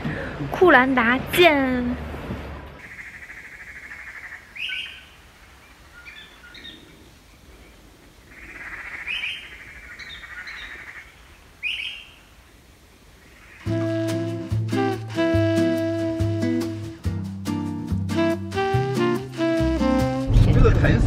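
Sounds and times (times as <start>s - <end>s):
bird trilling: 2.8s - 7.0s, 8.3s - 12.3s
bird chirps: 2.8s - 12.3s
short rising bird calls: 2.8s - 12.4s.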